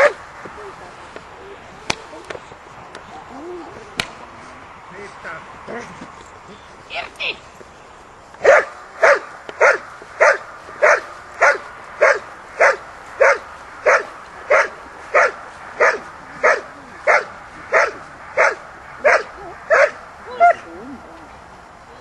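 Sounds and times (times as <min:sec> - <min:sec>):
dog barking: 0:00.0 - 0:00.2, 0:08.4 - 0:20.6.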